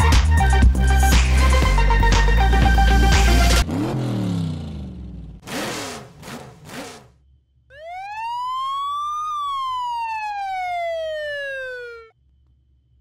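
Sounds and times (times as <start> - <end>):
police siren wailing: 7.7 - 12.2.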